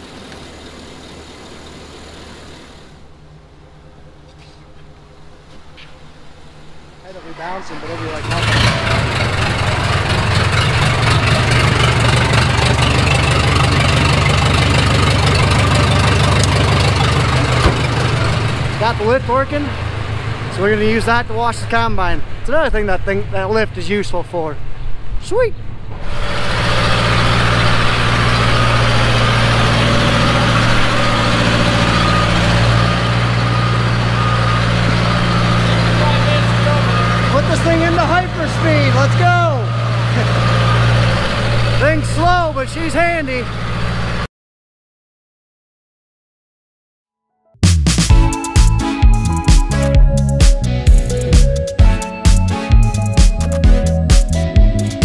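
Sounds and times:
engine running with low hum: 0:00.0 - 0:23.9, 0:25.7 - 0:44.3
hydraulics moving: 0:14.8 - 0:19.1.

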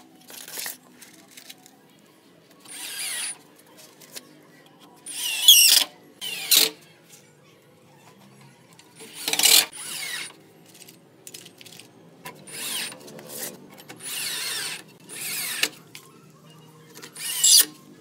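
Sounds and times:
cordless drill whining: 0:02.7 - 0:03.4, 0:05.1 - 0:06.7, 0:09.0 - 0:10.3, 0:12.5 - 0:13.0, 0:14.0 - 0:15.8, 0:17.1 - 0:17.8.

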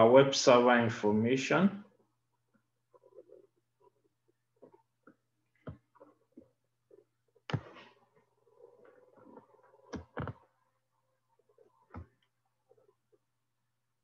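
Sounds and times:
sharp clicks and knocks: 0:09.2 - 0:10.5.

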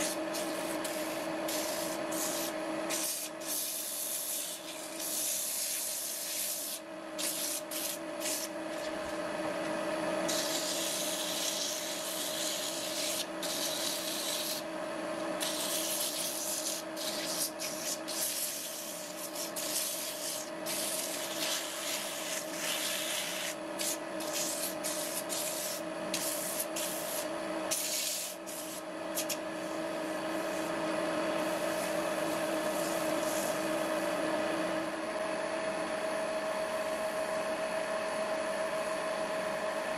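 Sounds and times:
sandpaper scraping spinning wood: 0:00.0 - 0:08.6, 0:10.3 - 0:14.7, 0:15.4 - 0:30.8, 0:31.4 - 0:34.0.

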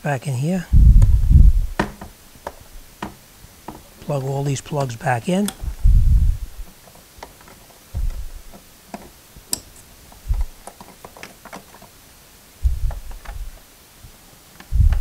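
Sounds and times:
dull low thumps: 0:00.7 - 0:01.8, 0:05.6 - 0:06.7, 0:08.0 - 0:08.5, 0:10.2 - 0:10.6, 0:12.6 - 0:13.6, 0:14.7 - 0:15.0.

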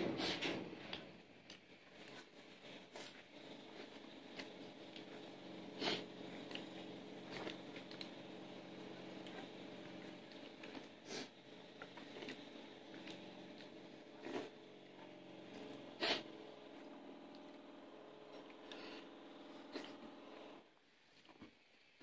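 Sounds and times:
quiet chewing: 0:00.8 - 0:08.2, 0:09.0 - 0:14.6, 0:19.6 - 0:20.5.

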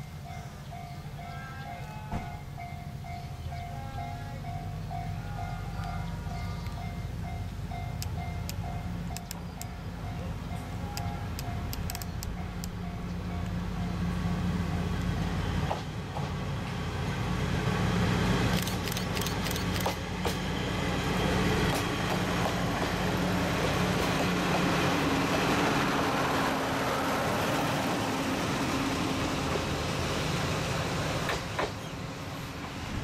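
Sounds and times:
diesel engine hum: 0:00.0 - 0:33.0
train rolling noise: 0:00.0 - 0:33.0
train wheel clicks: 0:07.9 - 0:09.9, 0:10.9 - 0:13.6, 0:18.5 - 0:20.4.

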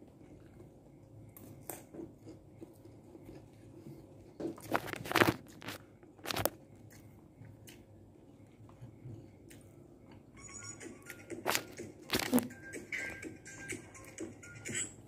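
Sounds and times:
crunching and chewing food: 0:00.0 - 0:14.6.

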